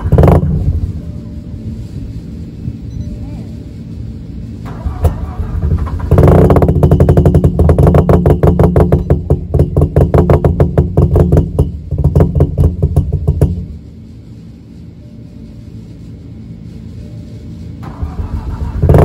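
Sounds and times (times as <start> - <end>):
rotary engine starting and pulsing: 0.0 - 3.0, 4.4 - 14.5, 17.0 - 19.0.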